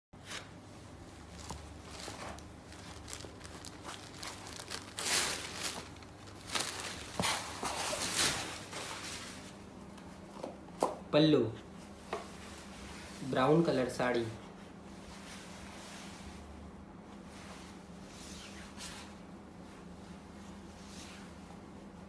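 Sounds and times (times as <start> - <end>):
cloth rustling: 0.3 - 9.6, 17.3 - 21.8.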